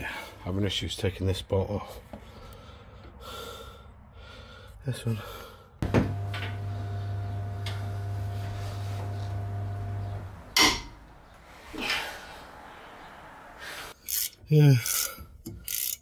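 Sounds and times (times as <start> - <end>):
power tool motor running: 5.8 - 10.6
sharp metallic clank: 10.6 - 11.0.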